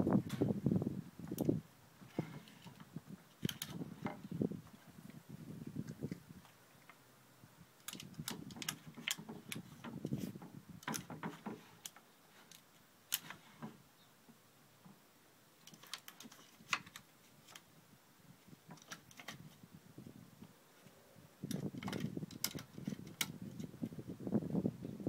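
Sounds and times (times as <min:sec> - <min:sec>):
rustling: 0:15.6 - 0:17.7.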